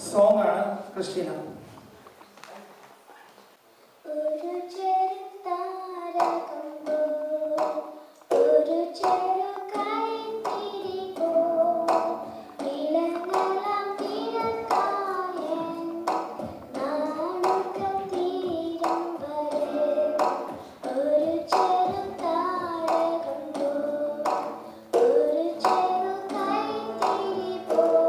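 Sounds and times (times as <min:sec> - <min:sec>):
girl singing into a microphone: 0:04.0 - 0:28.0
sharp percussive beats: 0:06.2 - 0:28.0.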